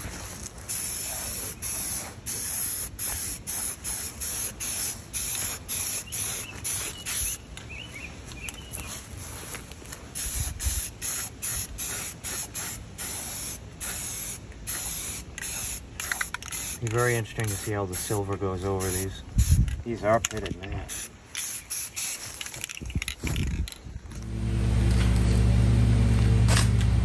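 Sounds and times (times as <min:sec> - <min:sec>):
aerosol spray can hissing: 0:00.7 - 0:07.4, 0:10.2 - 0:18.2, 0:18.8 - 0:19.7, 0:20.9 - 0:22.3.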